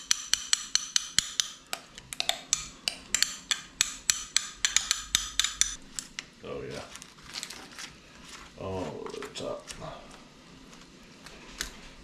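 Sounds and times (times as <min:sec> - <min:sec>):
metal spoon tapping a dish: 0:00.0 - 0:05.8.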